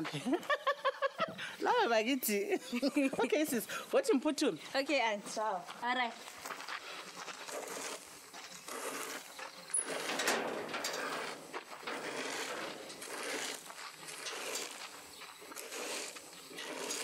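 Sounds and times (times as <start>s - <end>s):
metal gate rattling and scraping: 7.4s - 17.0s.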